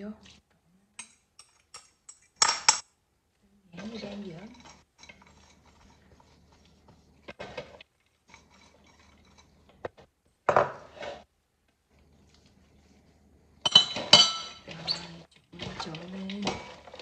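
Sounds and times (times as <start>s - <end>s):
utensils knocking and scraping bowl: 3.8s - 11.3s, 13.6s - 17.0s.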